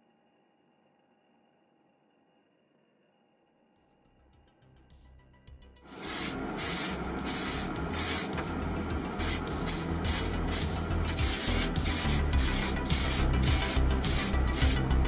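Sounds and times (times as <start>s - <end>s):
spray paint can hissing: 5.9s - 8.4s, 9.2s - 15.0s.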